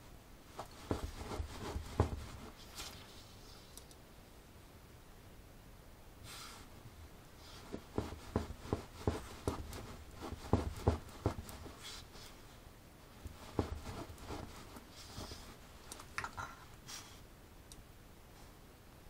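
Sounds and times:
dog claws scraping on floor: 13.3s - 16.1s.

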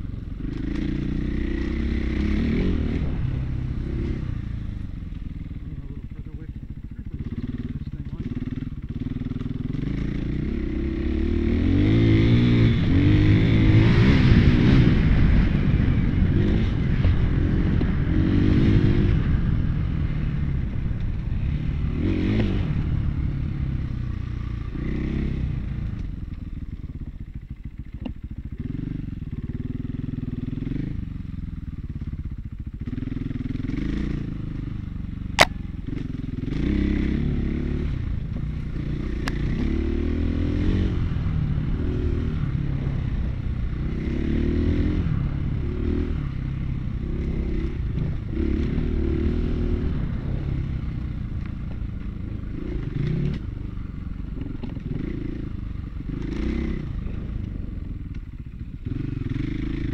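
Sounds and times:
dirt bike engine revving: 0.0s - 4.8s, 7.0s - 20.7s, 21.4s - 25.8s, 32.8s - 57.9s, 58.6s - 59.9s
sharp knock: 35.4s - 35.6s.

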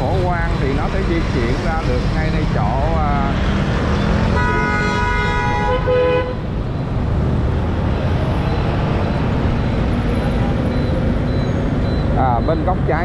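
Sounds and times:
traffic and road noise: 0.0s - 13.0s
vehicle horn honk: 4.3s - 6.4s.

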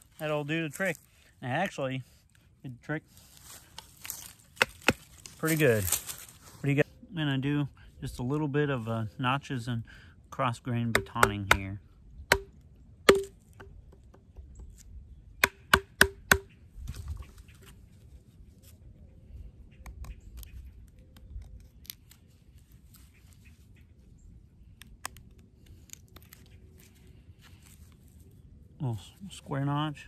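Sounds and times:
wooden baton knocking on knife: 12.3s - 12.5s, 13.1s - 14.5s.

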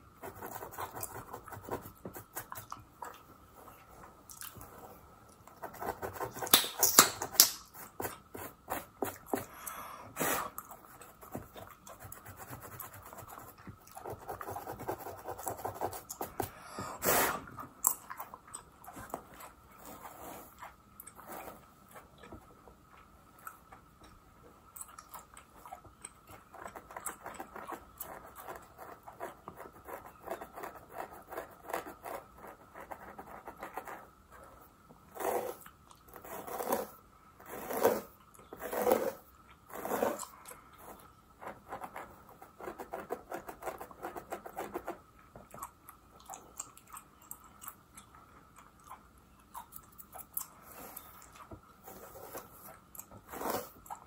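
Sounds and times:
gum chewing with wet smacks: 4.3s - 4.7s, 22.2s - 28.4s, 45.4s - 51.6s
comb scratching through hair: 36.2s - 40.2s, 53.3s - 53.8s.

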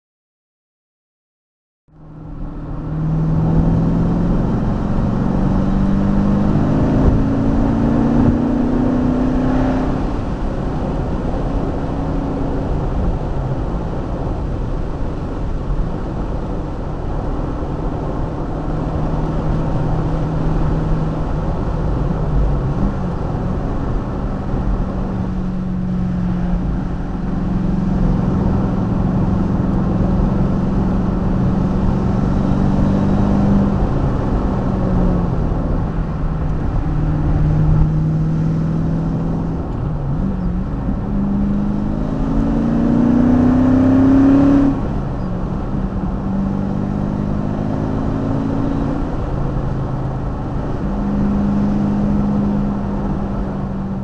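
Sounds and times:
car engine accelerating: 1.9s - 54.0s
tyre and road noise: 1.9s - 54.0s.

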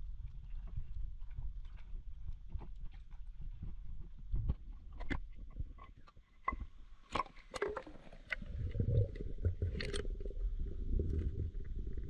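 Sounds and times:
underwater rumble: 7.7s - 12.0s.

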